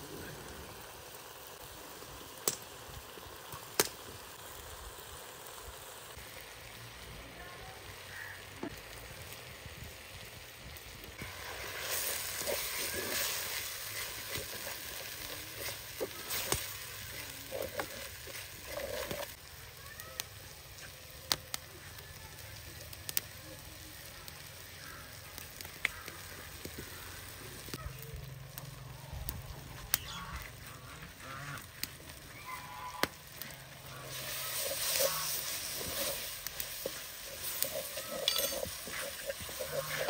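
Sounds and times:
food sizzling in hot oil: 0.0s - 40.0s.

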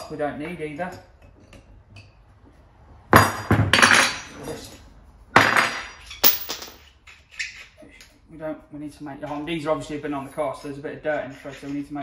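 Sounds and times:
metal parts clanking: 6.0s - 7.5s.

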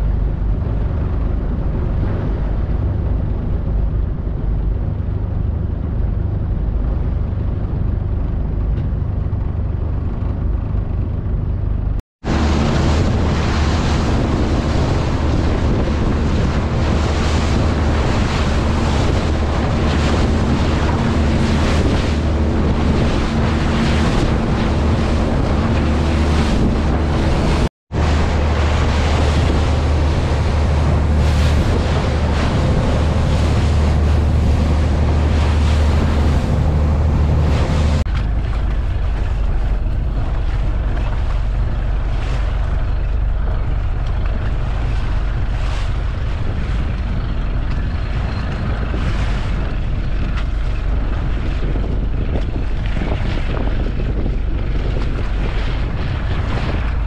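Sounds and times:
boat engine running: 0.0s - 57.0s
water along hull: 0.0s - 57.0s
wind buffeting microphone: 0.0s - 57.0s
wake spray: 12.3s - 47.0s.

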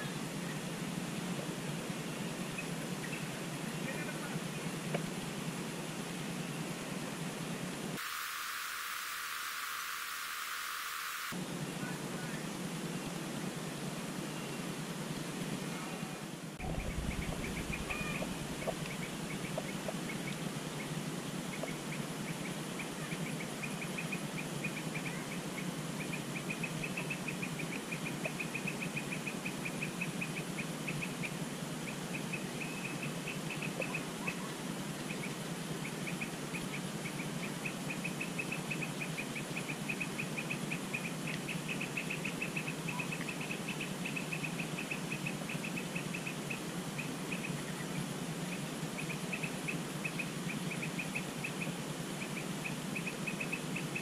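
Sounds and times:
steady background hiss: 0.0s - 54.0s
insect trilling: 8.0s - 11.4s, 16.6s - 34.5s.

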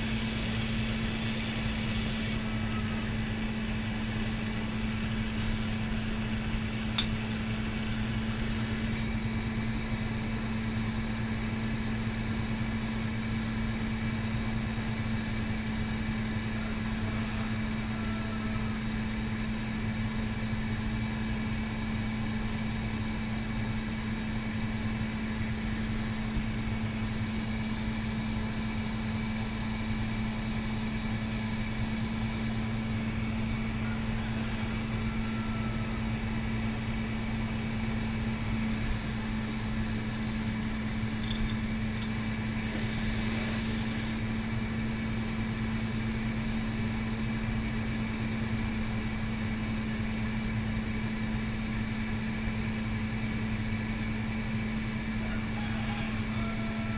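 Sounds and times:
low mechanical hum: 0.0s - 56.9s
torch burning: 41.7s - 44.3s.

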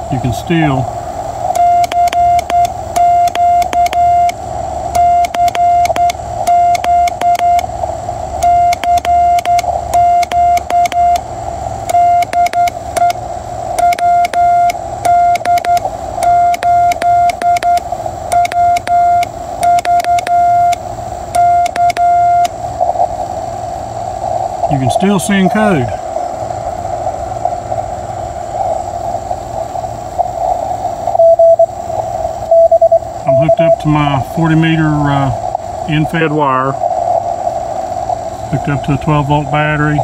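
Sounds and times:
receiver hiss: 0.0s - 40.0s
keying clicks: 1.5s - 4.4s, 5.0s - 7.7s, 8.4s - 11.2s, 11.9s - 13.2s, 13.8s - 19.0s, 19.6s - 20.8s, 21.4s - 22.5s
morse code tone: 1.5s - 7.7s, 8.4s - 22.5s, 31.2s - 31.7s, 32.5s - 33.9s.

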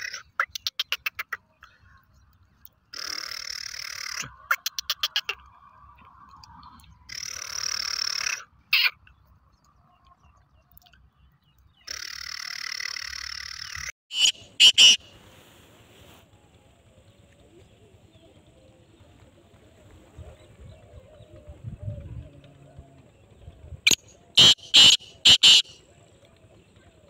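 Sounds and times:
francolin harsh grating calls: 2.9s - 5.4s, 7.1s - 9.0s, 11.8s - 15.1s, 23.9s - 25.8s.

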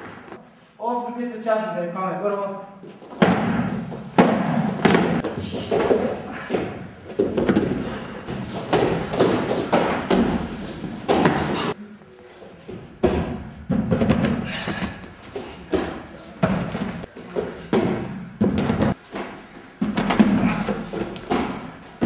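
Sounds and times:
punches thudding: 3.2s - 11.8s, 15.7s - 22.0s.

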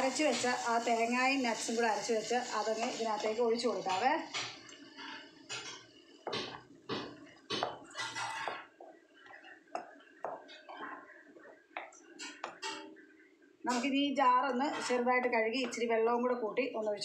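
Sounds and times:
spatula stirring thick mixture: 3.8s - 12.7s.

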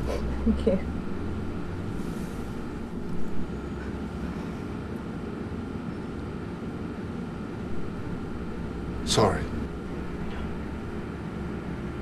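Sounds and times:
low background rumble: 0.0s - 12.0s.

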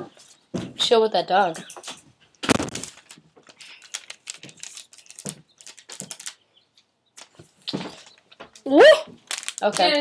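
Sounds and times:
paper rustling: 2.4s - 6.4s, 7.2s - 10.0s.

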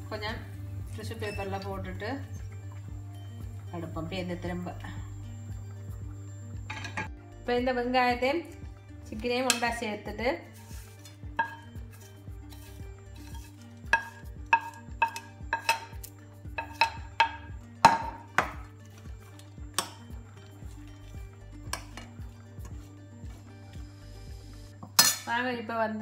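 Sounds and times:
metal spoon clinking on plates: 6.7s - 7.1s, 11.0s - 12.0s, 13.3s - 18.6s, 24.8s - 25.3s.

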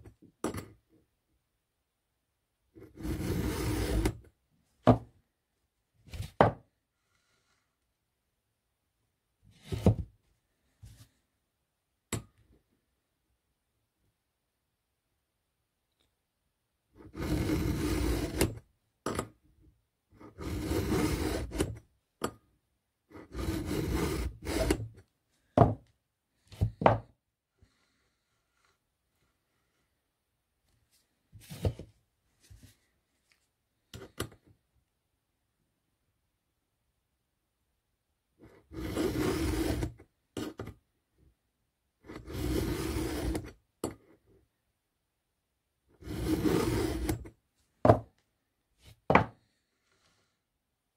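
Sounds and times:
file rasping on chain: 2.9s - 4.1s, 17.1s - 18.6s, 20.3s - 21.8s, 23.1s - 24.8s, 38.7s - 40.0s, 42.1s - 43.5s, 46.0s - 47.3s.

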